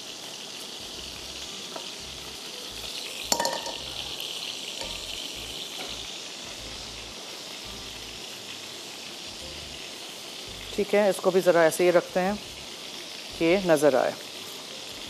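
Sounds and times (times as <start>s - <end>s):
hot oil sizzling in a pan: 0.0s - 15.0s
metal utensil clink: 3.3s - 4.1s, 4.8s - 5.2s.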